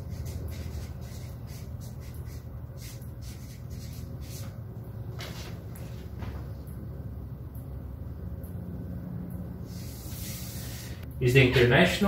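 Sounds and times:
marker writing on paper: 0:00.0 - 0:04.6
low steady hum: 0:00.0 - 0:12.0.

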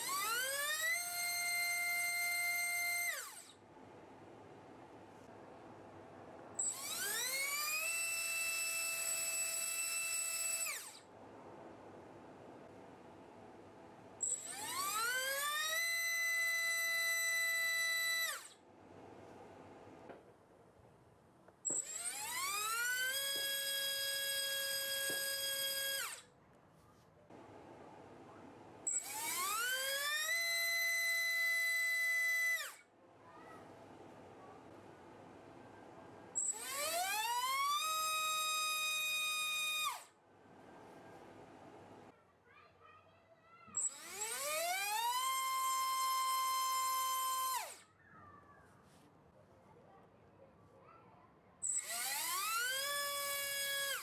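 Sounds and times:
electric motor propeller whine: 0:00.0 - 0:03.5, 0:06.6 - 0:11.0, 0:14.3 - 0:18.5, 0:21.8 - 0:26.2, 0:28.9 - 0:32.8, 0:36.4 - 0:40.1, 0:43.8 - 0:47.8, 0:51.6 - 0:54.0.

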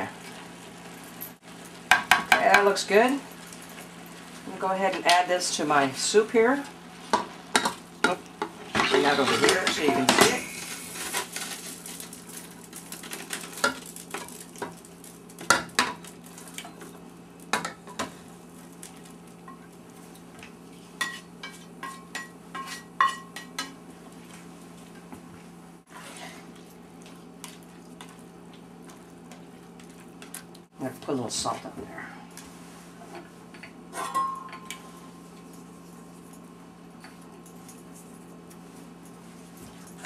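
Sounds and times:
utensil scraping metal pots: 0:07.6 - 0:12.1.

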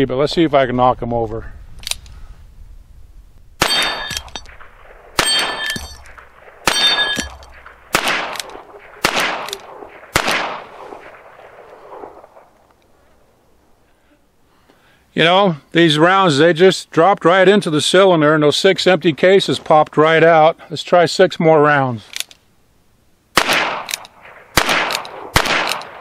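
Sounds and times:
steel plate ringing clang: 0:03.6 - 0:04.5, 0:05.2 - 0:07.6.

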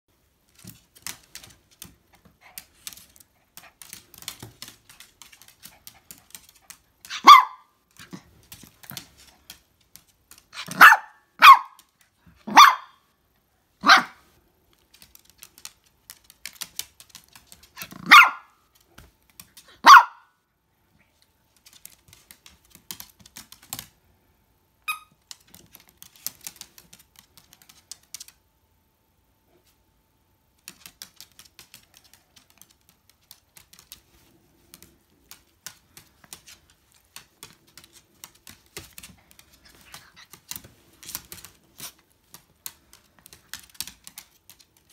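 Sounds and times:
claws clicking on wooden floor: 0:00.5 - 0:07.2, 0:14.7 - 0:18.1, 0:21.5 - 0:24.0, 0:25.2 - 0:28.4, 0:30.6 - 0:44.9
small dog yapping: 0:07.0 - 0:07.7, 0:10.6 - 0:11.8, 0:12.4 - 0:13.0, 0:13.8 - 0:14.2, 0:17.8 - 0:18.6, 0:19.8 - 0:20.3.

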